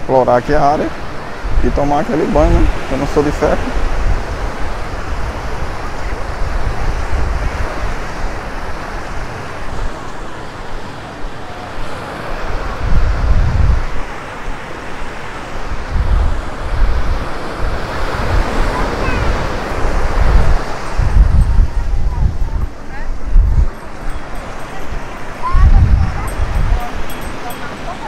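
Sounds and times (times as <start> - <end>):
sea waves washing up shore: 0.0 - 28.0
wind buffeting microphone: 0.9 - 10.9, 11.8 - 28.0.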